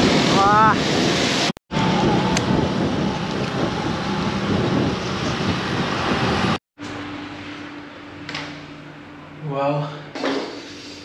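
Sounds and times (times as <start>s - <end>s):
motorbike and traffic engines: 1.7s - 9.0s.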